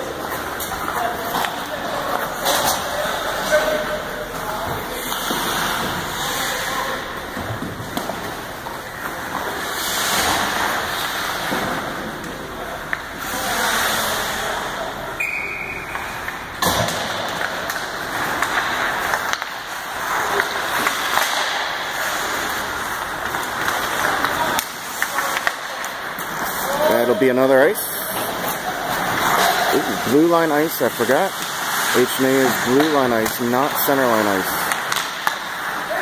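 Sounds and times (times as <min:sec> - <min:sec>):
hockey sticks and puck clacking: 0:00.0 - 0:36.0
skate blades scraping ice: 0:04.8 - 0:12.0, 0:15.9 - 0:36.0.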